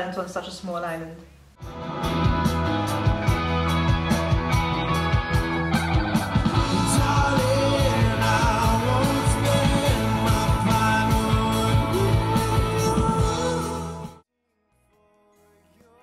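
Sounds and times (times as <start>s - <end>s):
indie rock band playing: 1.6s - 14.2s
person singing: 6.6s - 14.2s.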